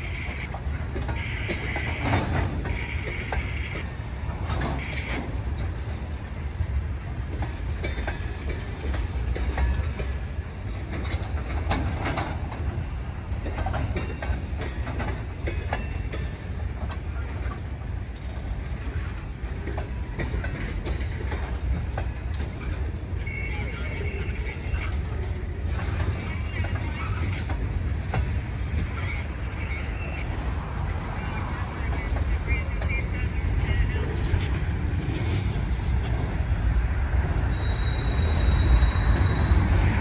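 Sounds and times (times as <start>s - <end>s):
freight train rumbling: 0.0s - 40.0s
wheels clicking over rail joints: 0.0s - 40.0s.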